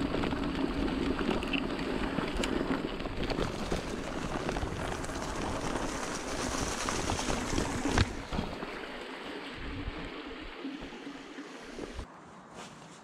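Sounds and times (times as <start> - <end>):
bike tyres crunching on gravel: 0.0 - 10.0
creek water rushing: 3.9 - 12.1.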